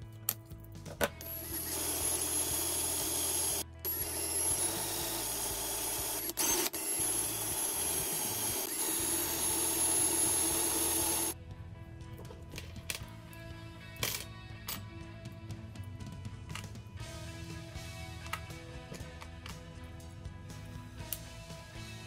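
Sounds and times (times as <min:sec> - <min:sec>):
cordless drill drilling: 0:01.2 - 0:11.4.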